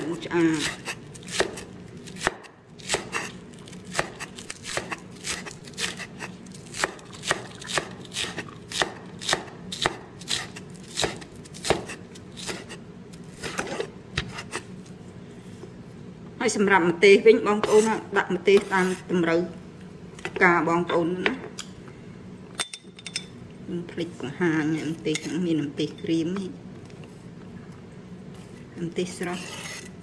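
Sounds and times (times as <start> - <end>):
cleaver chopping on wooden board: 0.6 - 1.6, 4.0 - 6.0, 6.8 - 12.6.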